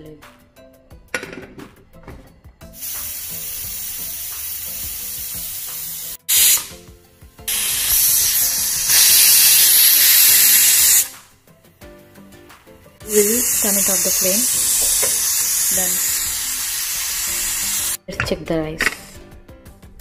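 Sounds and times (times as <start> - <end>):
pressure cooker whistling: 2.8 - 6.8, 7.5 - 11.2, 13.1 - 18.0.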